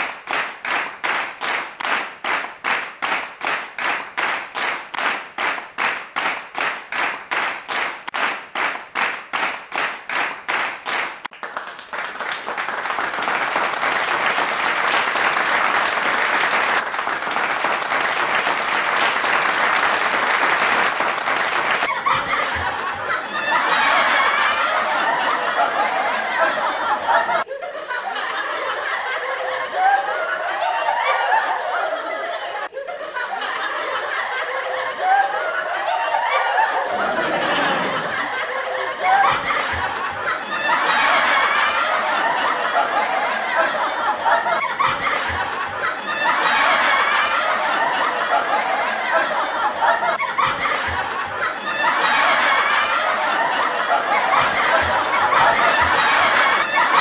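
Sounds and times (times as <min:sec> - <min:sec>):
people laughing together: 0:21.6 - 0:57.0.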